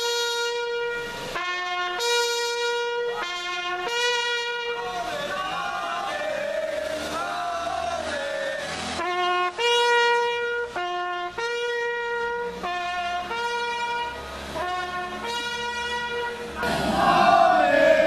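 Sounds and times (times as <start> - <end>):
brass horn playing: 0.0 - 4.8, 8.9 - 18.0.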